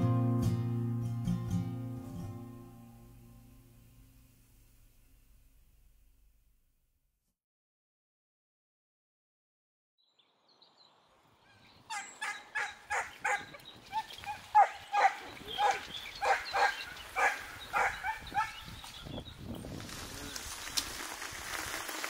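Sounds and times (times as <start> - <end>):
dog barking in high yelps: 12.2 - 18.6.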